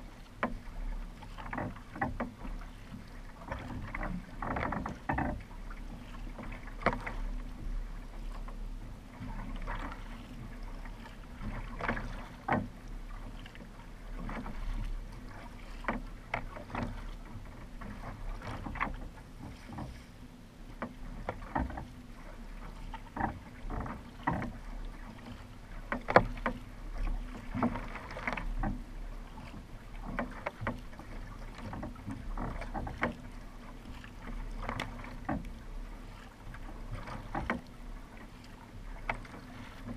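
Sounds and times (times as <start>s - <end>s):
paddle strokes splashing: 0.0s - 39.9s
water rushing along hull: 0.0s - 39.9s.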